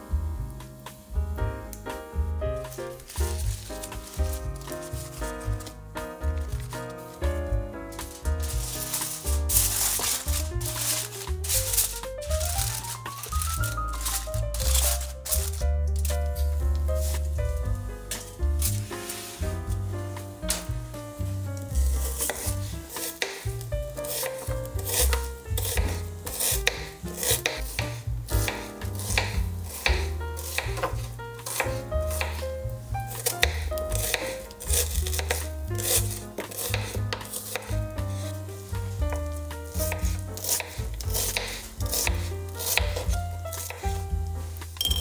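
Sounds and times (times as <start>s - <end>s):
background music: 0.0s - 45.0s
knife chopping on wooden board: 8.0s - 17.3s, 21.8s - 32.5s, 33.1s - 38.3s, 39.0s - 44.1s.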